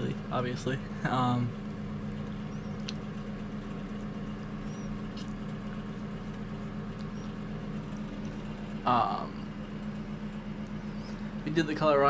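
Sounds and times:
machine humming: 0.0 - 12.0
faint clicks: 2.1 - 3.1.

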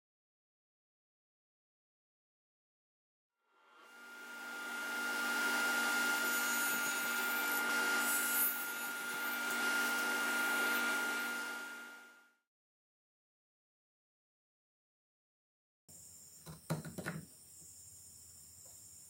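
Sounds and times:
table saw whining: 3.6 - 12.3.

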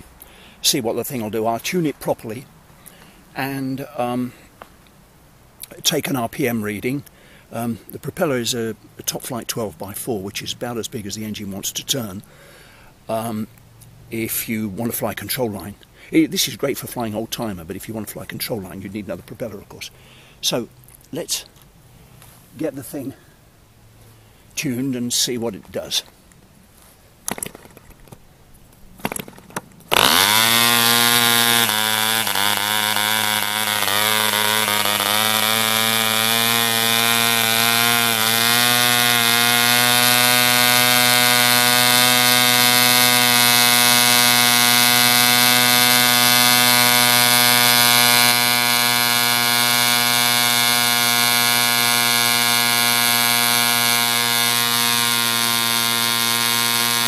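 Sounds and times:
propeller flicks: 27.3 - 28.2
model diesel engine running: 29.0 - 57.0.

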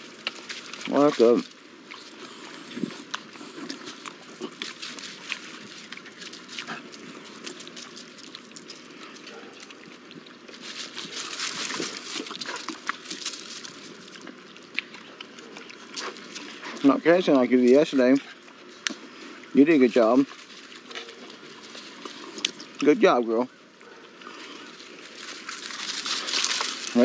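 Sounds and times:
puppies rustling dry leaves: 0.0 - 27.0.

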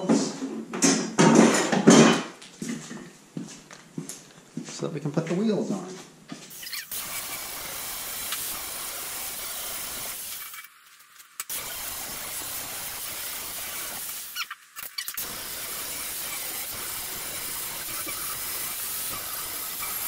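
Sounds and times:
angle grinder grinding metal: 11.4 - 20.0.

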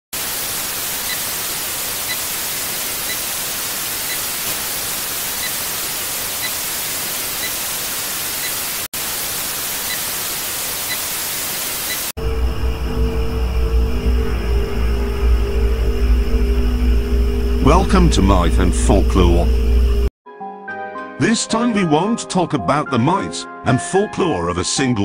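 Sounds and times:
tv static hiss: 0.2 - 12.2, 17.6 - 20.1
dark eerie music with low bass: 12.2 - 20.1.

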